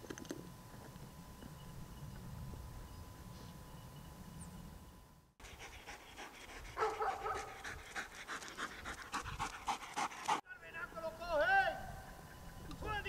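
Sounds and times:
dog panting: 5.4s - 10.4s.

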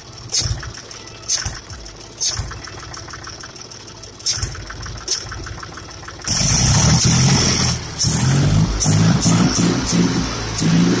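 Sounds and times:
tractor diesel engine idling and revving: 0.0s - 11.0s.

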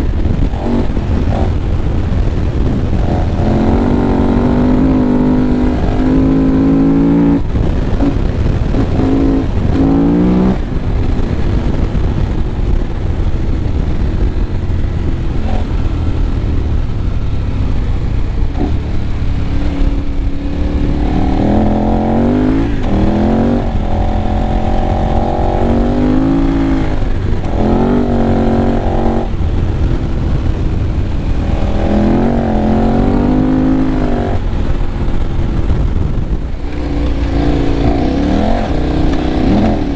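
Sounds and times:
motorcycle engine revving: 0.0s - 39.9s
wind and ground noise rumble: 0.0s - 39.9s.

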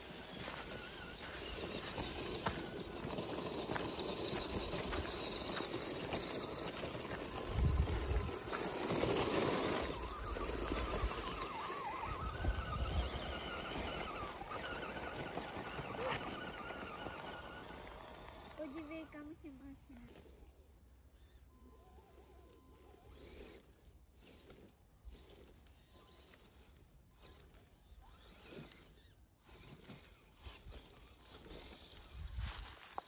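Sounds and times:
tyres crunching on gravel: 0.0s - 18.9s, 30.5s - 33.0s
electric motors whining: 0.0s - 33.0s.

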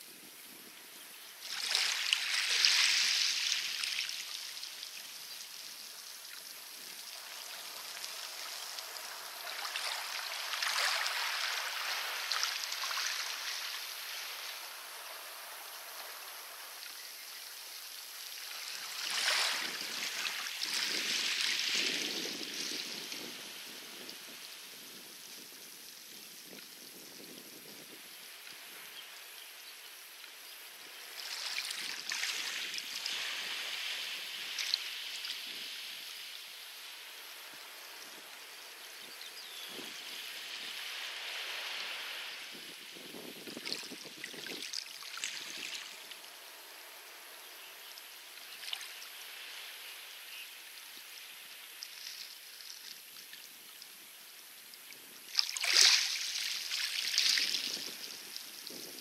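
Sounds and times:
waves washing onto pebble beach: 6.5s - 16.8s.

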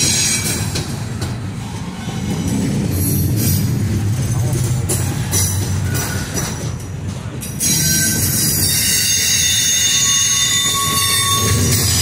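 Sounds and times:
train wheels rumbling on rail: 0.0s - 12.0s
high wheel squeal: 7.6s - 12.0s.

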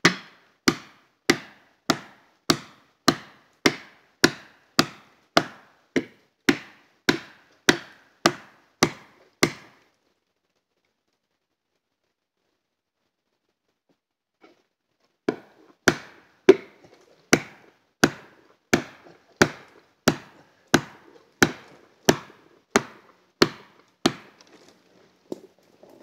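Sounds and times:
sharp strikes on felling wedge: 0.0s - 9.8s, 15.3s - 24.7s.

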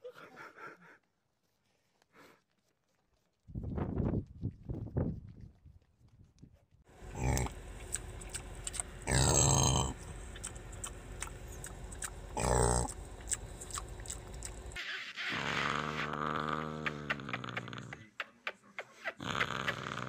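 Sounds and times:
pig grunting: 7.0s - 18.1s, 19.1s - 20.0s
mouth clicks: 7.1s - 20.0s.

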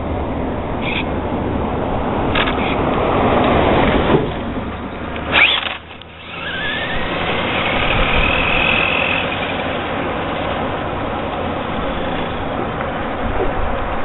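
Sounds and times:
high electric motor whine: 4.7s - 13.3s.

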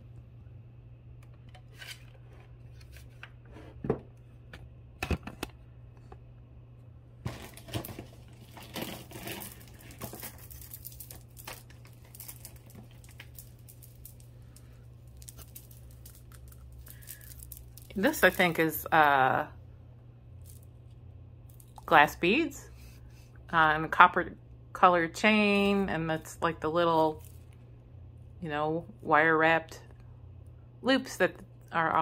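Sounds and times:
jewelry rustling: 7.3s - 19.3s, 26.9s - 27.6s.

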